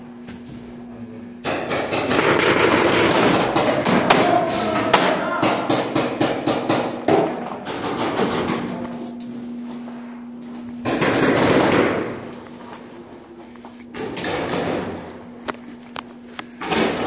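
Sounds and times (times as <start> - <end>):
paintball guns firing: 1.4 - 8.7, 10.8 - 12.2, 13.9 - 15.1, 16.6 - 17.0.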